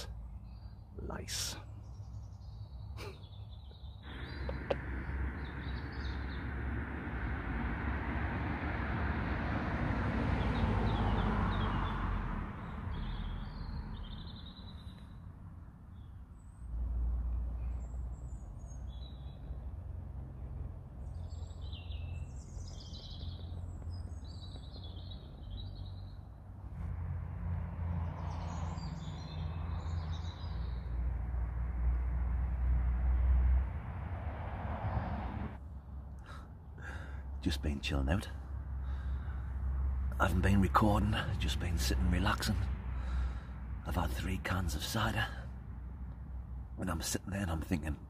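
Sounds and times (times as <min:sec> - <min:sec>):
small birds chirping: 0:00.0 - 0:08.4, 0:10.3 - 0:26.8, 0:28.0 - 0:32.4, 0:35.6 - 0:48.0
steady low rumble: 0:04.0 - 0:10.2, 0:14.2 - 0:29.3
broad rushing noise: 0:04.0 - 0:10.3.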